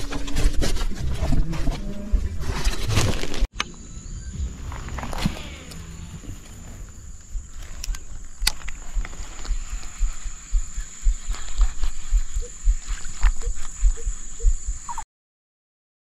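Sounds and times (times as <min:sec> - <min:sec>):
dull low thumps: 0:00.8 - 0:03.0, 0:04.2 - 0:15.0
high-pitched buzz: 0:03.5 - 0:07.5
sharp clicks: 0:07.2 - 0:15.0.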